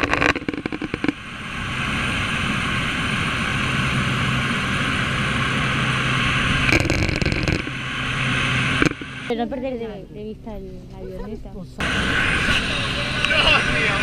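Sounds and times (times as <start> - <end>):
wind rushing over microphone: 0.0 - 9.3
propeller plane engine running: 0.0 - 14.0.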